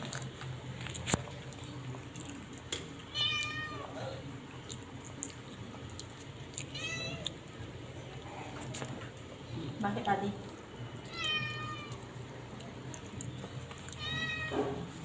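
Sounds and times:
cat meowing: 0:03.1 - 0:04.0, 0:06.6 - 0:07.4, 0:11.0 - 0:12.0, 0:13.9 - 0:15.0.

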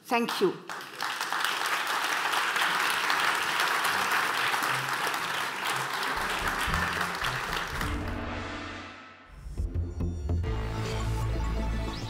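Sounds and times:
audience applauding: 0:00.6 - 0:08.6
low-pitched music: 0:06.0 - 0:12.0.

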